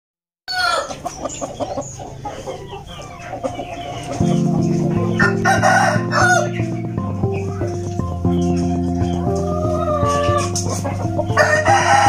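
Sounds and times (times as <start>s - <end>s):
rooster crowing: 0.5s - 1.0s, 5.2s - 6.6s, 9.3s - 10.6s, 11.4s - 12.0s
chickens clucking: 0.5s - 12.0s
music: 3.4s - 12.0s.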